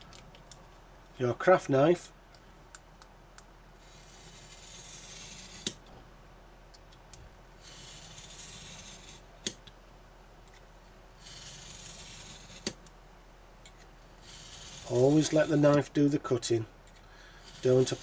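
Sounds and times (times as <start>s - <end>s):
knife scraping through card: 3.8s - 5.8s, 7.6s - 9.2s, 11.2s - 12.8s, 14.2s - 15.6s, 17.4s - 18.0s.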